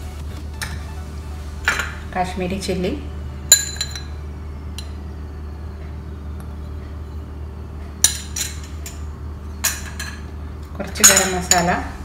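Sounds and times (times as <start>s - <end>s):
steady low hum: 0.0s - 12.0s
metal spoon clinking on ceramic bowls: 10.9s - 11.8s.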